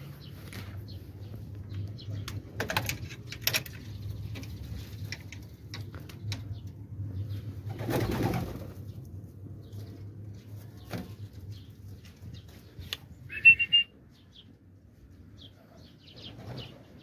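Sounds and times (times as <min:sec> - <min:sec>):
wings flapping: 0:07.6 - 0:09.0.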